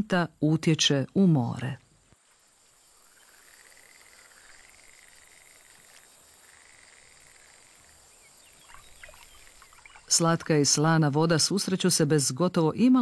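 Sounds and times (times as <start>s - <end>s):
steady high hiss: 1.4s - 10.9s
frog croaking: 2.7s - 10.9s.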